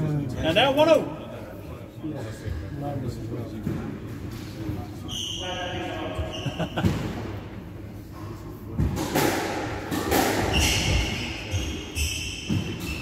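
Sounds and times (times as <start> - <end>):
squash ball struck by rackets: 8.8 - 11.2
shoes squeaking on wooden floor: 10.5 - 13.0.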